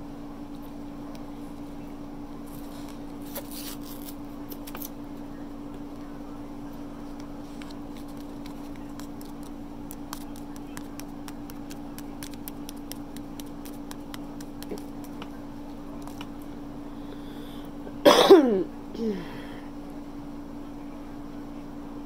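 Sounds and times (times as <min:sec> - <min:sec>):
steady low hum: 0:00.0 - 0:22.0
paper packets crinkling: 0:07.5 - 0:15.2.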